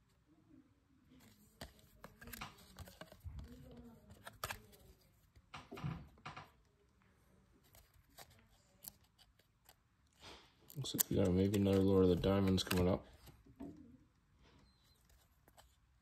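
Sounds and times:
cards flipping and snapping: 0:01.2 - 0:05.7, 0:07.6 - 0:13.5.

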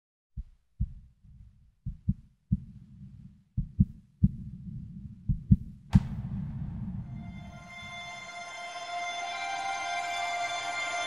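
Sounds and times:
heartbeat thuds: 0:00.4 - 0:07.4
low rumble: 0:01.9 - 0:09.2
music: 0:06.0 - 0:11.0.

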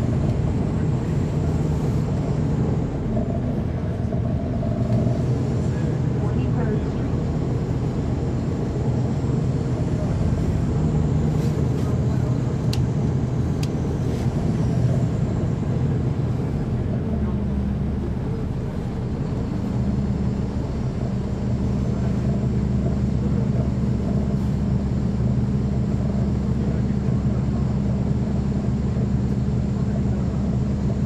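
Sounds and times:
bus diesel engine droning: 0:00.0 - 0:31.0.

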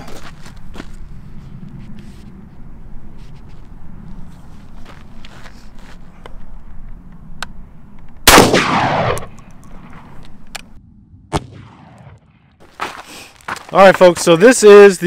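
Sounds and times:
shotgun shot echoing: 0:08.3 - 0:10.1, 0:11.3 - 0:12.5.

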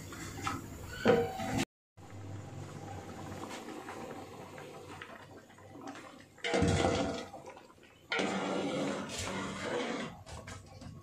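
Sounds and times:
liquid sloshing in a pot: 0:03.2 - 0:11.0.

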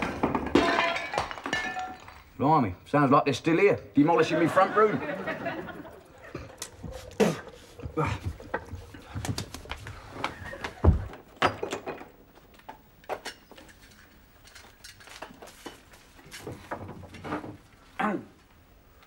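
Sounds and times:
household things knocking and clattering: 0:00.0 - 0:02.4, 0:06.3 - 0:17.6.

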